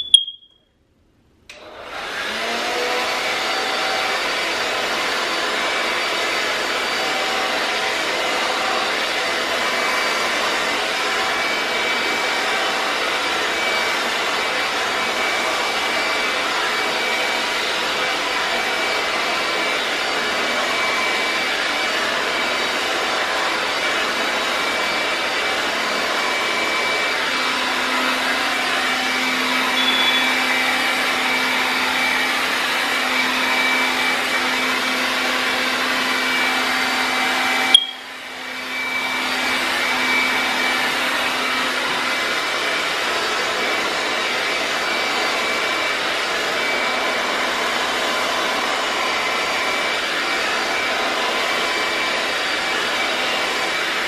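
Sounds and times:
hair dryer blowing: 0.0 - 0.4, 1.5 - 54.0
hair dryer switch click: 1.5 - 1.7.

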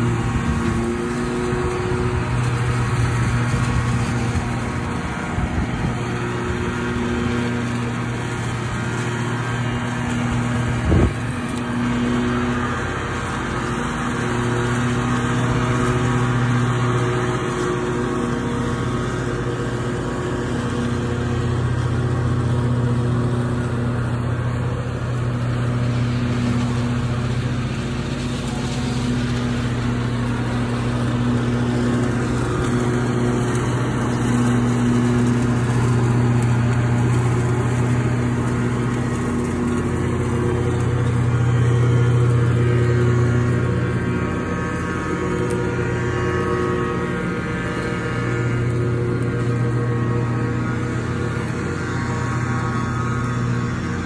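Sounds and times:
riding lawn mower engine running: 0.0 - 54.0.

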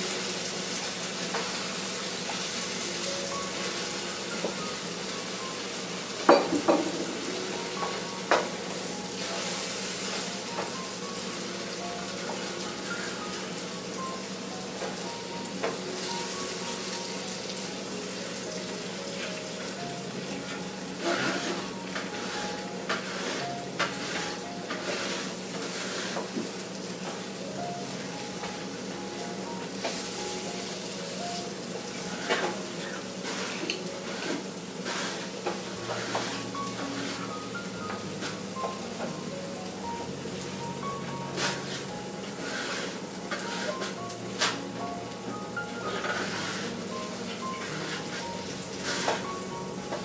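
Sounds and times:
eggs and tomatoes sizzling in a pan: 0.0 - 50.0
spatula scraping and tapping a pan: 33.2 - 37.3.

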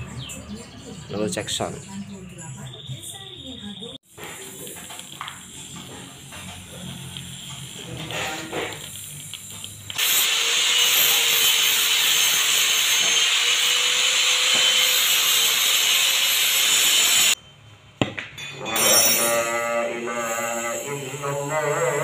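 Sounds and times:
arc welder crackling: 4.0 - 17.4.

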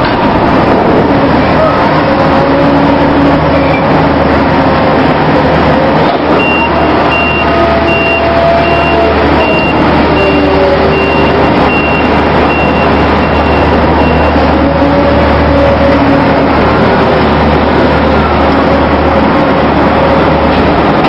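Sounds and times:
crane machinery drone: 0.0 - 21.0
high warning beeper: 6.4 - 14.4.

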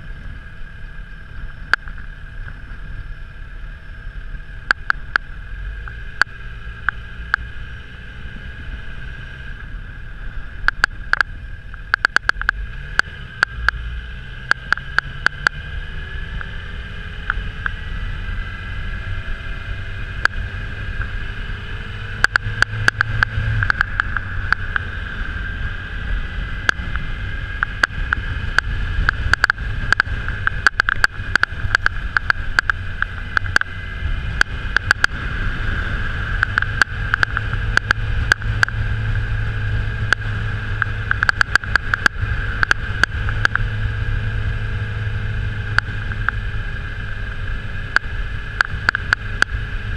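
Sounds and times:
low wind rush: 0.0 - 49.9
motorcycle engine running: 0.0 - 49.9
sharp clicks: 4.6 - 7.5, 10.6 - 13.8, 14.4 - 15.6, 22.2 - 24.9, 27.6 - 35.2, 36.3 - 38.8, 40.1 - 43.7, 47.9 - 49.6.

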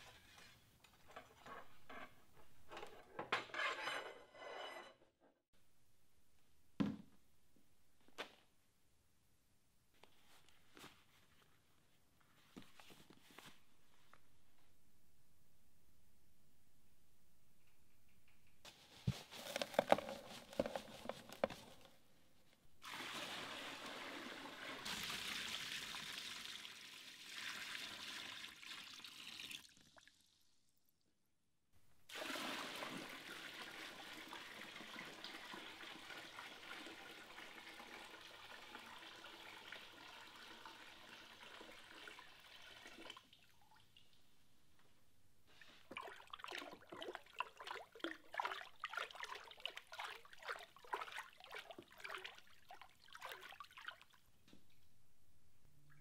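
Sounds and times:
water trickling into plastic tub: 45.9 - 54.2.

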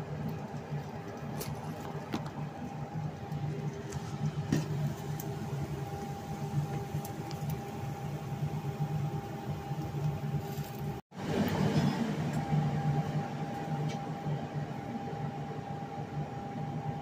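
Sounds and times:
omelette cooking in pan: 0.0 - 11.4
low mechanical hum: 0.0 - 17.0.

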